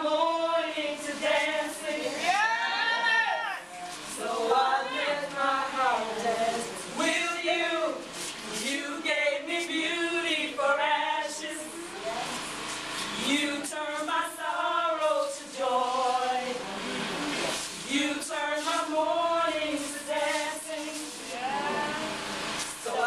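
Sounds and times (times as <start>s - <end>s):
voices singing together: 0.0s - 12.4s, 13.1s - 23.0s.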